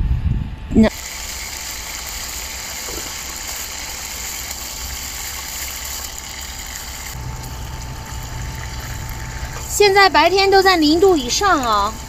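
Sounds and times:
low hum: 0:00.0 - 0:12.0
meat sizzling in a pan: 0:00.9 - 0:10.0
camp stove burner hissing: 0:00.9 - 0:12.0.

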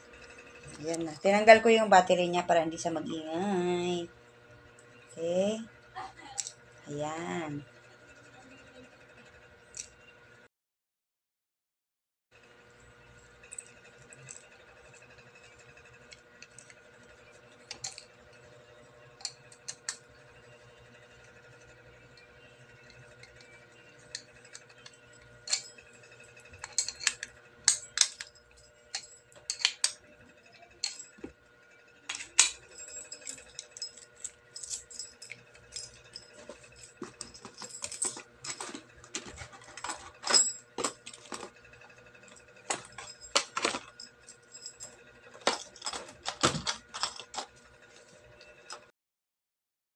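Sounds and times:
small plastic and metal pieces clicking: 0:26.6 - 0:28.3, 0:28.9 - 0:30.0.

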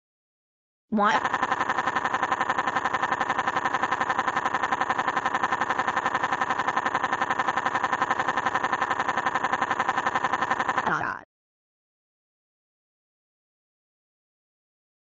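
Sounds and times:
synthetic voice repeating a word: 0:01.0 - 0:03.6, 0:04.7 - 0:11.3.

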